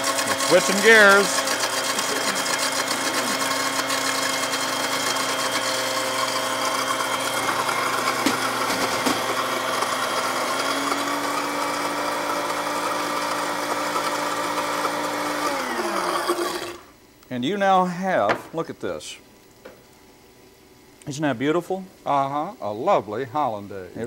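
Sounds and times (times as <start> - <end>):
electric blender whirring: 0.0 - 17.0.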